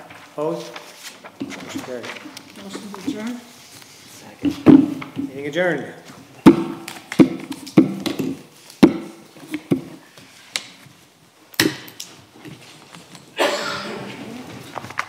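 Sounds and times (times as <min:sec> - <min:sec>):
objects knocking on tables: 0:04.4 - 0:05.3.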